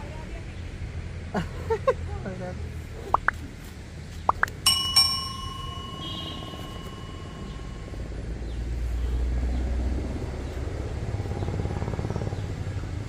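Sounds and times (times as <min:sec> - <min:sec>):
bell chime ringing: 0:04.6 - 0:08.3.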